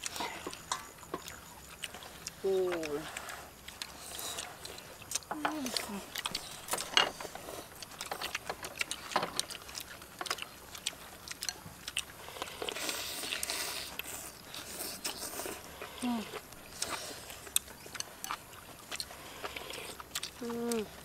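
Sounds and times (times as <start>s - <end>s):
chopsticks clicking against bowls: 0.0s - 7.2s, 7.8s - 12.1s, 16.8s - 20.9s
slurping: 0.0s - 21.0s.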